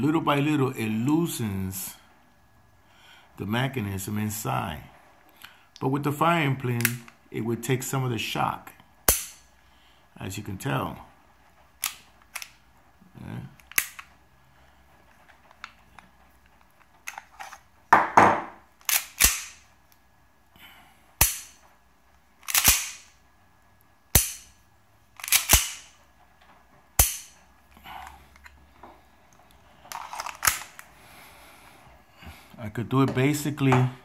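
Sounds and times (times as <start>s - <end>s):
pistol hammer snapping: 9.1s - 9.4s, 13.7s - 14.0s, 18.8s - 19.6s, 21.2s - 21.6s, 22.4s - 23.1s, 24.1s - 24.6s, 25.2s - 25.9s, 27.0s - 27.4s.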